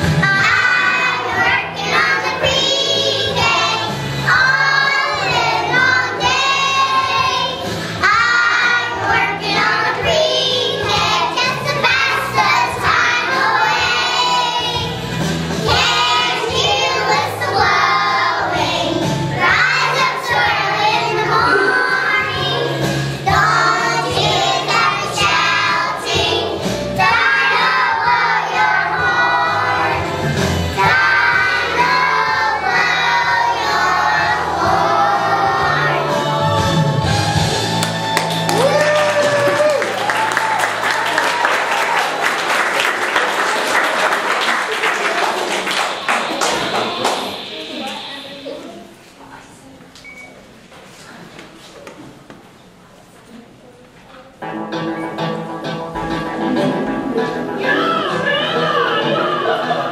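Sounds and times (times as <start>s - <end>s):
children singing in unison: 0.0s - 37.5s
recorded music: 0.0s - 49.0s, 54.4s - 59.9s.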